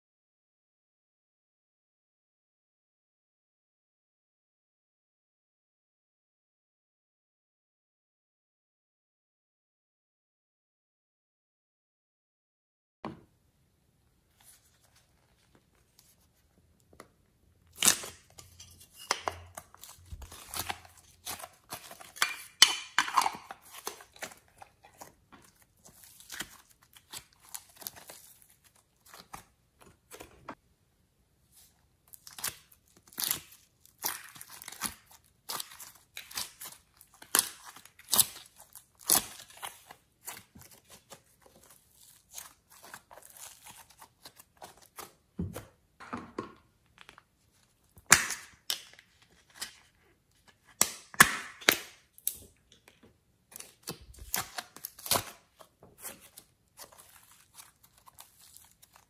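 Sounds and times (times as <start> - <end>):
modelling clay crackling and tearing: 17.7 - 30.4, 32.0 - 45.3, 53.5 - 59.0.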